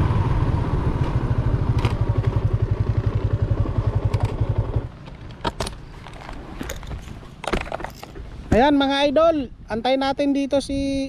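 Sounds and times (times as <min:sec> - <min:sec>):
motorcycle engine idling: 0:00.1 - 0:05.0.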